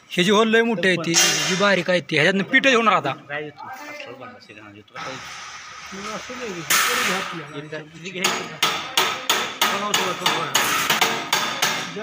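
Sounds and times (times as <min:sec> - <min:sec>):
metal-on-metal knocks: 0:08.2 - 0:12.0.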